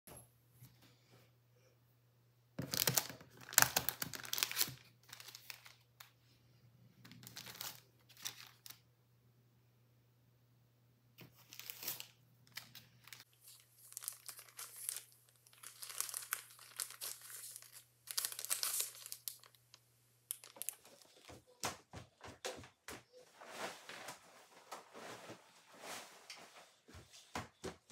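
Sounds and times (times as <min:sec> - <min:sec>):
paper rustling and crinkling: 0:02.6 - 0:06.2, 0:07.0 - 0:08.8, 0:11.2 - 0:19.6, 0:20.3 - 0:27.5.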